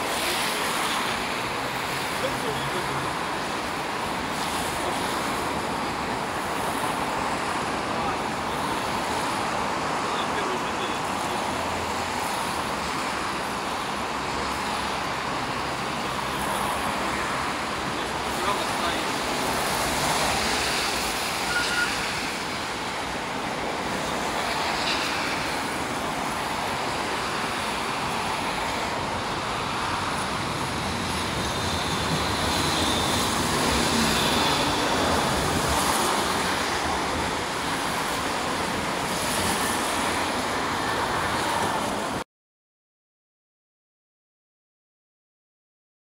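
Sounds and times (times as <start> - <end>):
city street traffic: 0.0 - 42.2
tram running on tracks: 0.0 - 42.2
tram wheel squeals: 20.6 - 22.4, 31.0 - 35.4.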